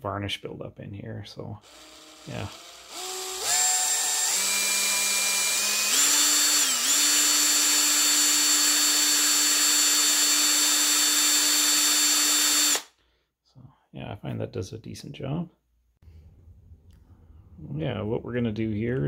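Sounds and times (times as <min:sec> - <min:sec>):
drill motor whine: 0:01.6 - 0:12.9.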